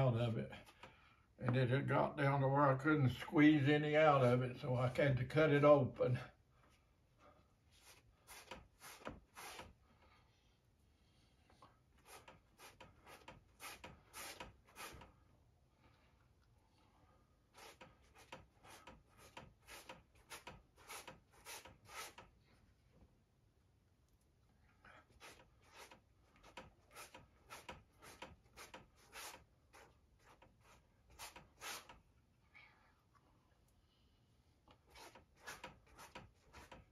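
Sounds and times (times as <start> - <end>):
hand rubbing paint on canvas: 7.7 - 9.8, 12.0 - 15.1, 17.6 - 22.3, 25.1 - 32.0.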